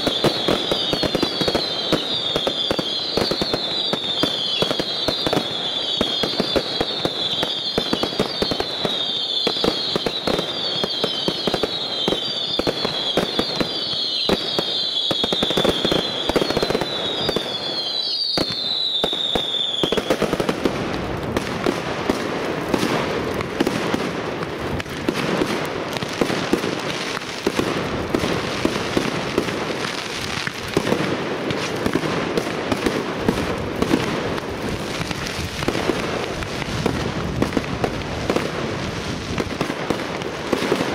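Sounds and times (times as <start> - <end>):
firework whistles falling in pitch: 0.0 - 20.4
fireworks crackling and banging: 0.0 - 40.9.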